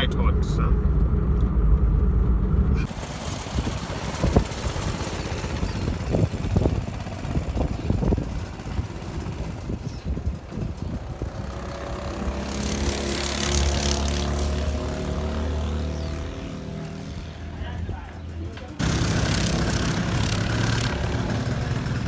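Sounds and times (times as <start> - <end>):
steady rushing noise: 0.0 - 14.2
distant go-kart engine: 0.0 - 22.0.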